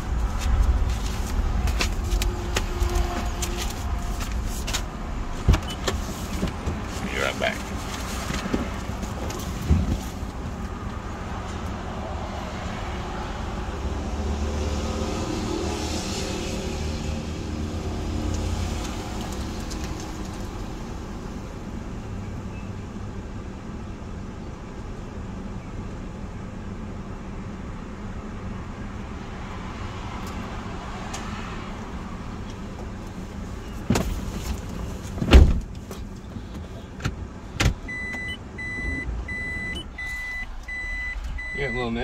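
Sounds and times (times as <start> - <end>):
sharp knocks and thumps: 8.2 - 10.6
reverse warning beep: 37.9 - 42.0.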